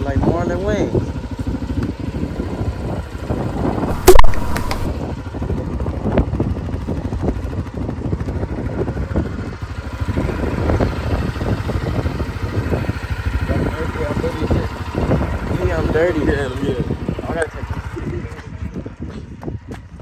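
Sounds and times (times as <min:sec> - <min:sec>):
atv engine rumbling: 0:00.0 - 0:20.0
loud sharp knock: 0:03.9 - 0:04.9.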